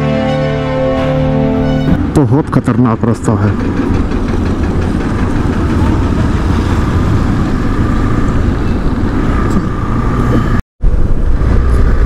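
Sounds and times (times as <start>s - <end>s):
motorcycle running: 3.3s - 12.0s
low wind rumble on microphone: 3.5s - 12.0s.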